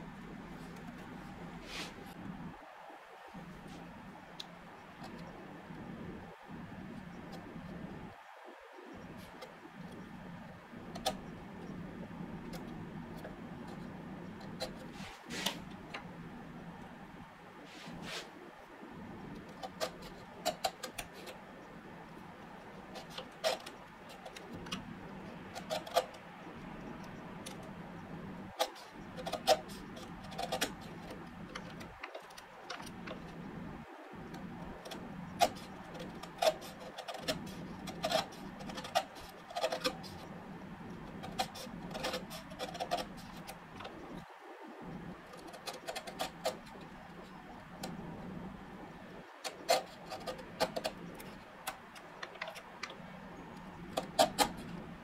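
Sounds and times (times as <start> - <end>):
chisel clicking and crackling in wood: 19.3 - 44.2, 44.9 - 48.0, 48.9 - 55.0.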